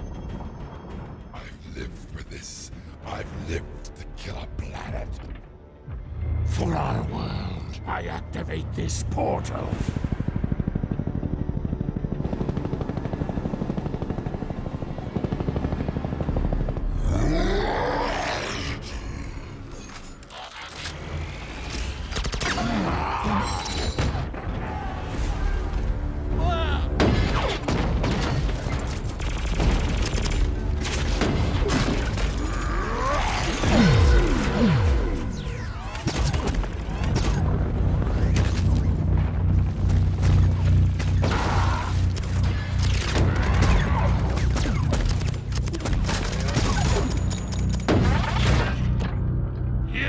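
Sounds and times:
helicopter rotors beating: 7.1 - 18.2, 27.6 - 47.9.

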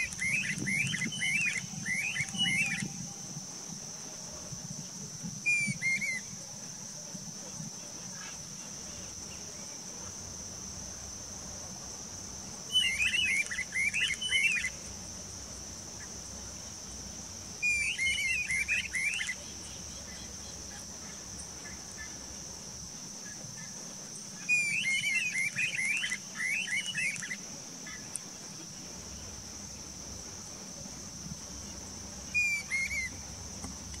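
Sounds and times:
birds chattering in duet: 0.0 - 2.9, 17.6 - 22.2, 24.6 - 28.2, 32.4 - 33.2.

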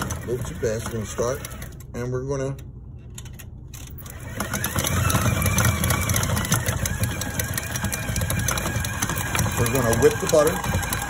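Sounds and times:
paddle beating butter in bowl: 0.0 - 1.6, 4.2 - 11.0
stand mixer whining and running: 0.0 - 1.7, 4.1 - 11.0.

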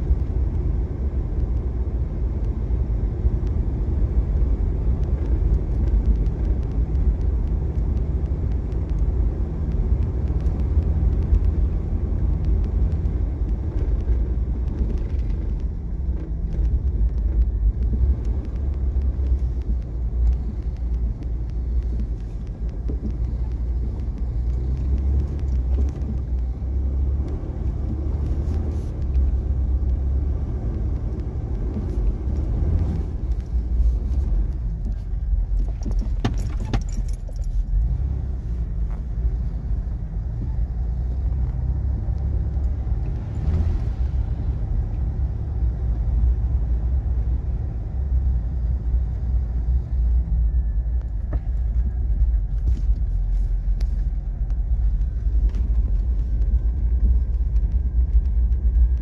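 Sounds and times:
engine and tyres rumbling: 0.0 - 59.0
metallic jingling rattle: 35.6 - 37.7.

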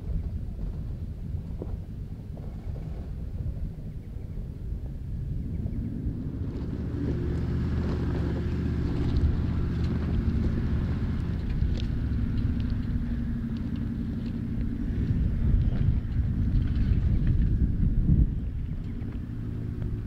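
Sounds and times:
diesel engine running at low revs: 0.0 - 20.0.

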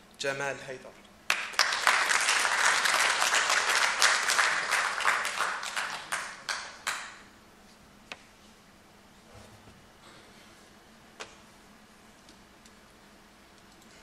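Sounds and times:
audience applauding: 1.3 - 7.2.

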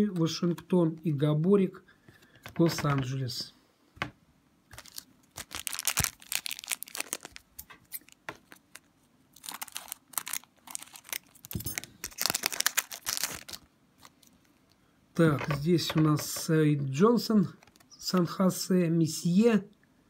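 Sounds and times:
card pack wrapper tearing: 4.7 - 14.3, 17.6 - 17.9.

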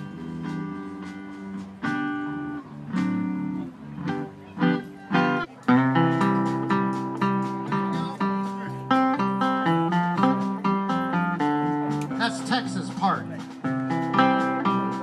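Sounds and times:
drums: 0.0 - 15.0
electric guitar chords and melody: 0.0 - 15.0
upright bass: 0.0 - 15.0.

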